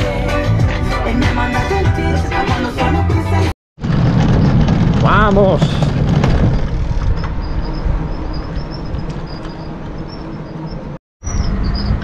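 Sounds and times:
tyres rolling over paving: 3.8s - 10.4s.

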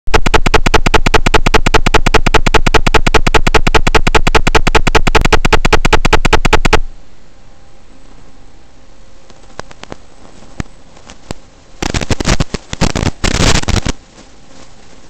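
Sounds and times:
electronic clicking buzz: 0.1s - 6.9s, 11.8s - 14.0s
low hiss: 5.2s - 15.0s.

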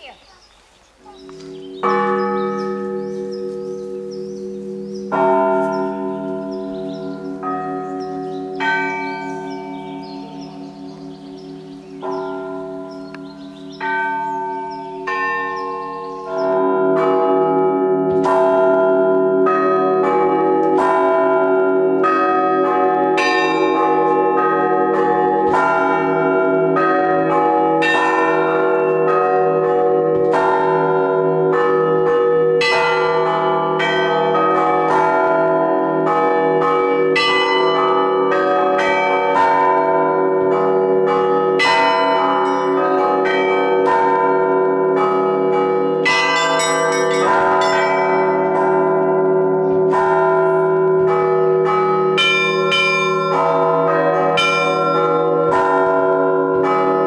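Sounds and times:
small bells chiming: 1.0s - 17.0s, 41.6s - 56.1s
large bells humming: 1.0s - 57.0s.

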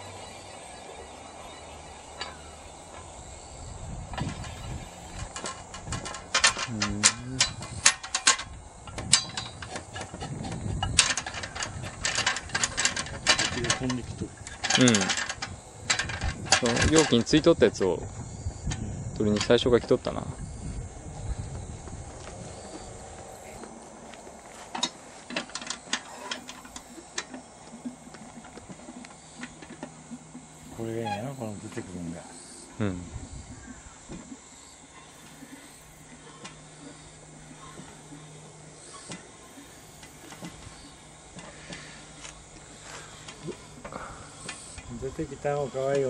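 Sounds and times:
metallic clicks and clanks: 2.1s - 3.1s, 4.1s - 17.9s, 24.6s - 30.0s.

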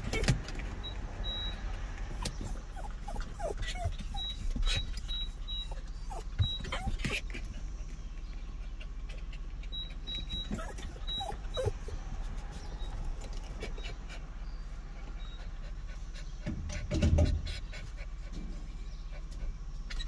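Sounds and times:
dog making small sounds: 1.8s - 7.6s, 8.6s - 14.3s.

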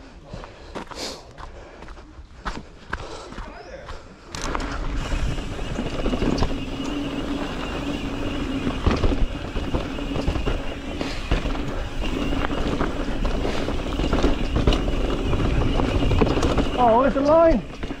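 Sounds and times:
tyres rolling over dirt: 4.3s - 18.0s
bike knocks and rattles: 4.4s - 18.0s.

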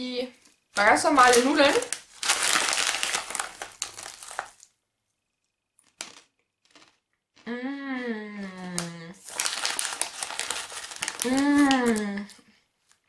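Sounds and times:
foil snack bag crinkling: 0.8s - 4.7s, 6.0s - 7.0s, 8.7s - 12.3s
crunching dry snack: 1.2s - 4.7s, 5.8s - 7.5s, 9.2s - 12.0s.

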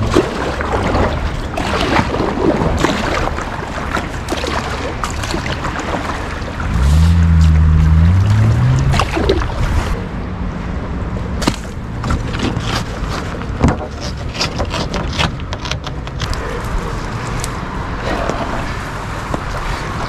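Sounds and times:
paddle splashes: 0.0s - 10.1s, 16.7s - 20.0s
river water rushing and splashing: 0.0s - 13.6s, 16.4s - 20.0s
low droning tone: 6.6s - 12.0s.

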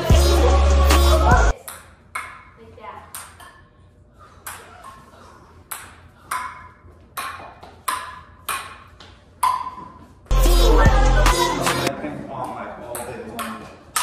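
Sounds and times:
ping-pong ball clicks: 1.6s - 2.5s, 5.7s - 9.8s.

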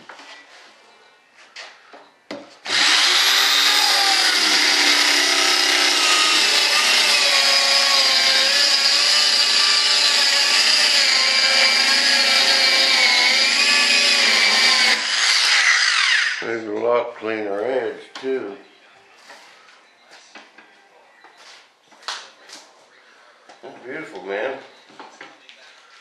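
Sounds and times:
power saw cutting: 2.7s - 16.5s.

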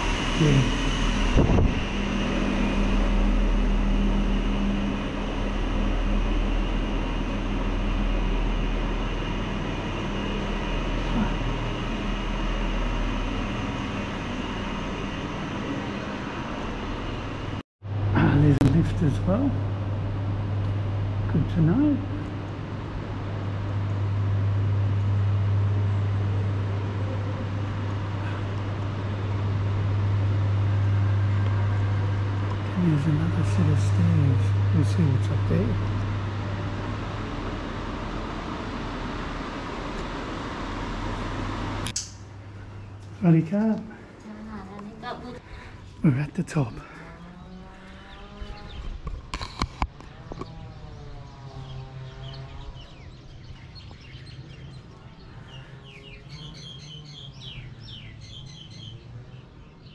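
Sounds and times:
rushing noise: 0.0s - 44.2s
low machine hum: 0.0s - 59.9s.

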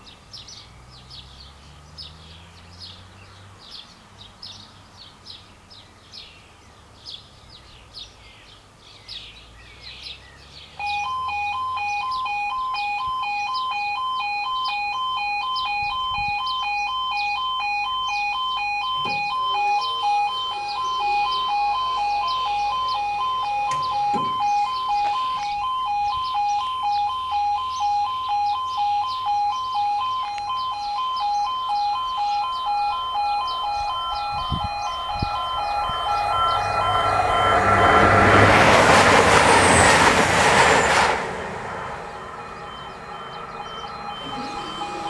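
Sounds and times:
birds chirping: 0.0s - 38.4s, 41.7s - 45.0s
level crossing warning alarm: 10.8s - 45.0s.

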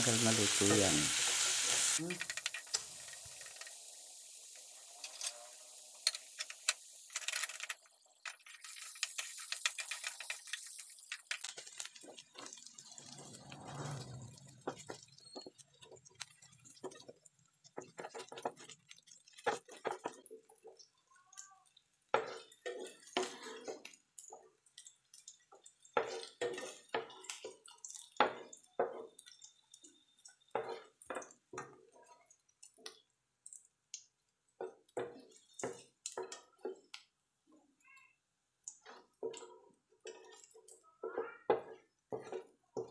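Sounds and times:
spatula scraping frying pan: 4.6s - 20.8s, 22.1s - 24.9s, 25.7s - 29.4s, 30.4s - 31.8s, 38.8s - 42.9s.

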